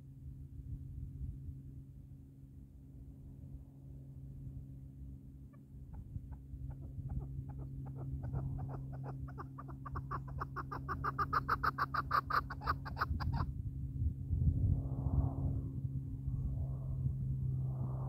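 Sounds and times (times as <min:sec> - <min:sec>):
partridge clucking call: 0:06.7 - 0:13.4.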